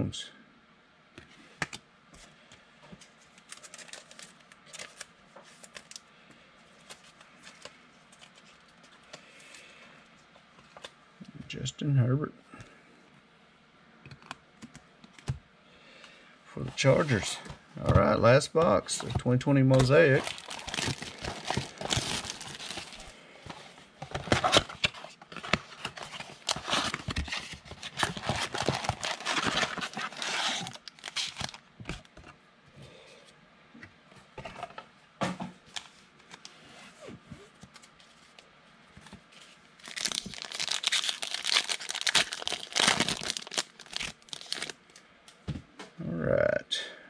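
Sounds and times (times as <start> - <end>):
foil pack crinkling and tearing: 3.3 - 6.0, 19.8 - 23.1, 24.1 - 32.0, 39.8 - 44.8
plastic shrink-wrap crinkling and tearing: 3.3 - 6.1, 19.8 - 23.1, 24.1 - 32.0, 39.8 - 44.8.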